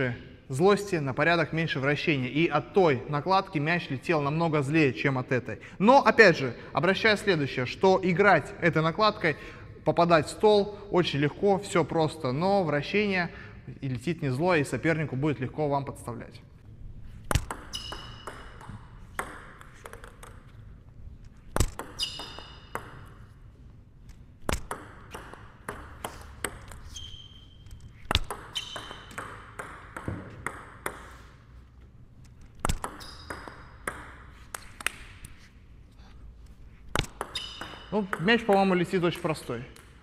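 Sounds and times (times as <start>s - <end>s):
ball bouncing on table: 17.2s - 20.6s, 21.5s - 23.4s, 24.4s - 26.9s, 28.0s - 31.2s, 32.6s - 35.2s, 36.9s - 40.0s
table tennis ball hits: 17.2s - 20.6s, 21.5s - 23.4s, 24.4s - 27.0s, 27.7s - 31.5s, 32.5s - 35.4s, 36.9s - 40.0s
brief high squeaks: 17.7s - 18.2s, 22.0s - 22.7s, 26.8s - 28.0s, 28.6s - 29.1s, 33.0s - 33.4s, 37.4s - 37.9s.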